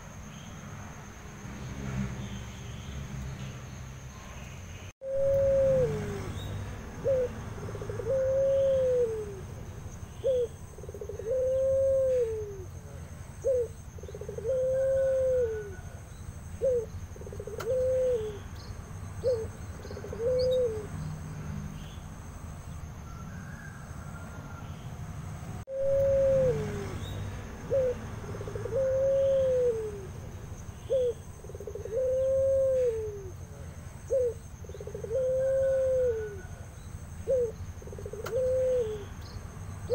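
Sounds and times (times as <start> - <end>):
dove cooing: 5.0 - 9.6, 10.2 - 16.0, 16.6 - 18.5, 19.2 - 21.0, 25.7 - 33.4, 34.1 - 39.2.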